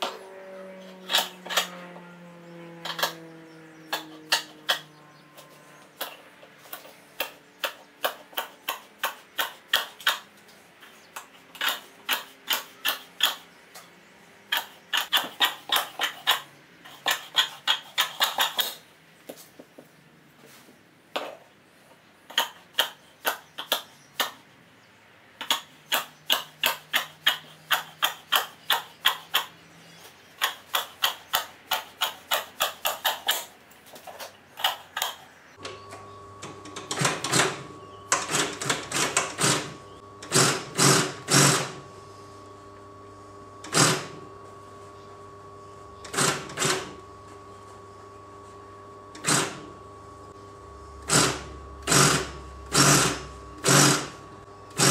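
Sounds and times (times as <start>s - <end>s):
shears snipping fabric: 3.9s - 13.9s, 14.5s - 18.9s, 25.4s - 35.2s.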